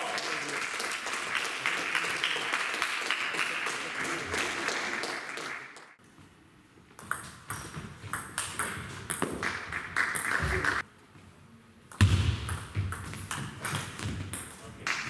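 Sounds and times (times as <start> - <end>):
applause: 0.0 - 6.0, 9.4 - 10.8.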